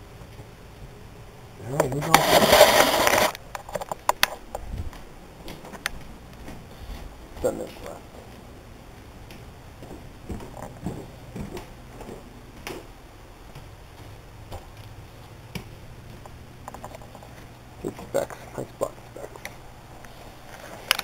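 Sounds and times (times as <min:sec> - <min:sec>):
low steady hum: 0:00.0 - 0:21.0
handheld camera jostling: 0:02.0 - 0:04.6
footsteps on wooden floor: 0:09.8 - 0:12.6.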